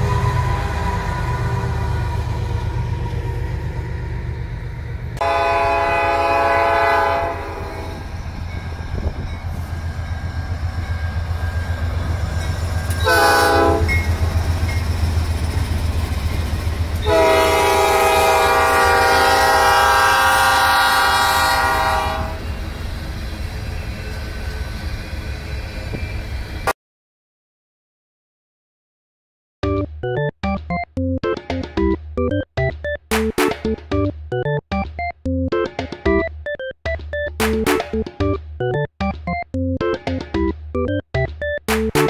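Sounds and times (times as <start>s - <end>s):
locomotive air horn blasts: 0.0s - 2.3s, 5.2s - 8.0s, 12.9s - 14.1s, 17.0s - 22.5s
freight train rumble: 0.0s - 26.7s.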